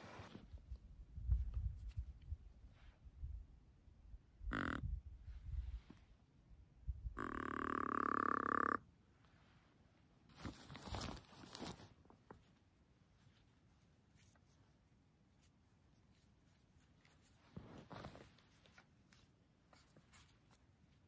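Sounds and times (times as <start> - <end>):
rustling and scraping: 0.0 - 3.0, 10.3 - 21.0.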